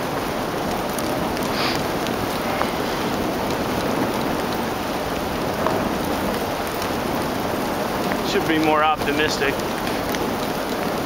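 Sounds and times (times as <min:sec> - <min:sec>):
sled runners hissing on snow: 0:01.4 - 0:03.3.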